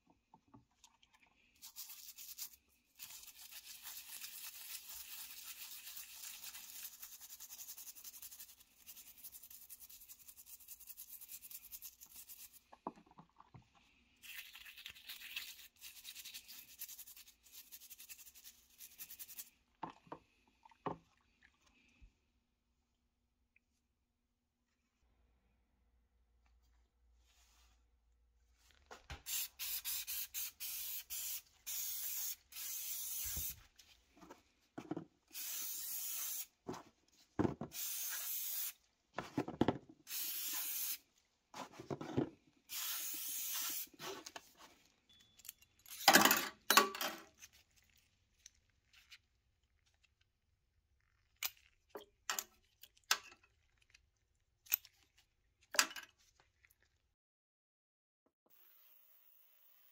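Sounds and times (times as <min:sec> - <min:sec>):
aerosol can spraying: 0:29.2 - 0:33.6, 0:35.3 - 0:36.5, 0:37.7 - 0:38.8, 0:40.1 - 0:41.0, 0:42.7 - 0:44.0.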